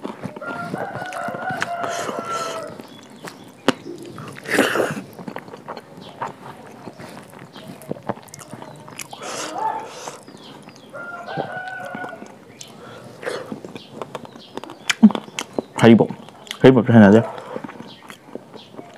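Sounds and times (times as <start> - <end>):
person chewing food: 0.0 - 16.6, 17.2 - 18.9
crunchy bites: 0.0 - 18.9
wet mouth clicks: 1.1 - 10.9, 11.8 - 16.6.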